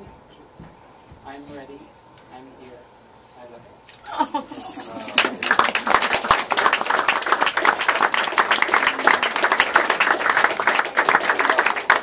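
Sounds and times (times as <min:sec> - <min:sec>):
people applauding: 0:04.8 - 0:12.0.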